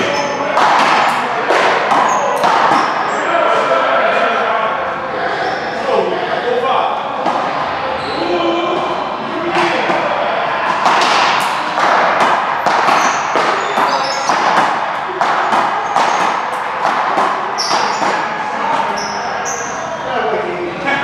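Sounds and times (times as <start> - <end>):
ball hits and bounces echoing: 0.0 - 3.1, 7.2 - 7.8, 8.6 - 19.7
short high squeaks: 18.9 - 20.0.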